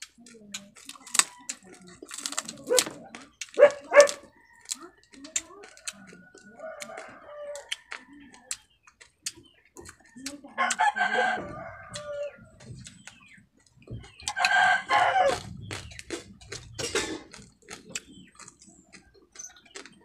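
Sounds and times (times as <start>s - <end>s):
crab shell crunching: 0.0s - 20.0s
rooster crowing: 10.6s - 12.4s, 14.3s - 15.4s.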